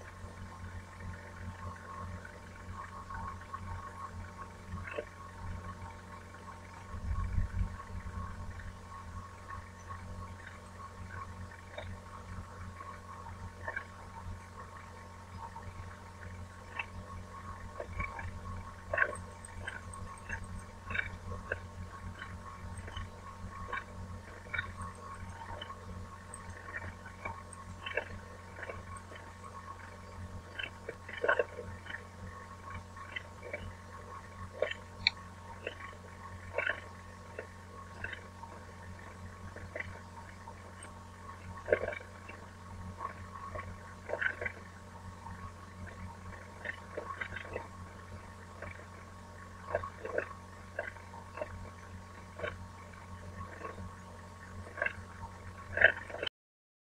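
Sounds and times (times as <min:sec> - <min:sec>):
faint constant tone: 0:00.0 - 0:56.3
low electrical hum: 0:00.0 - 0:56.3
faint clicks and knocks: 0:15.5 - 0:49.0.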